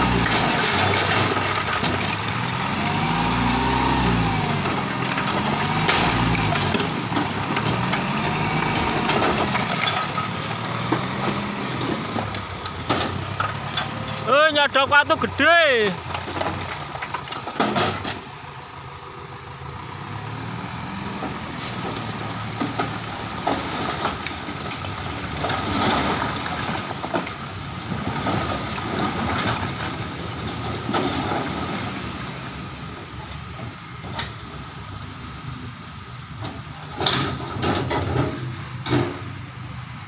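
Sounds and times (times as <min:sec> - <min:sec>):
rocks sliding and clattering: 0:00.0 - 0:18.3, 0:21.8 - 0:32.1.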